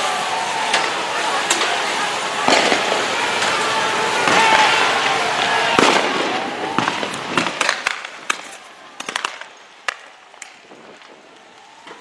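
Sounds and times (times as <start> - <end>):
sharp cracks and pops: 6.8 - 12.0.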